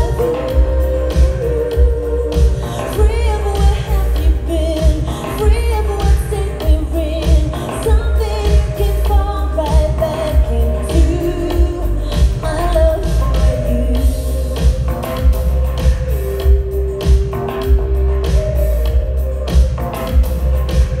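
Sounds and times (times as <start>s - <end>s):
woman singing with vibrato: 0.0s - 14.9s
synthesizers: 0.0s - 21.0s.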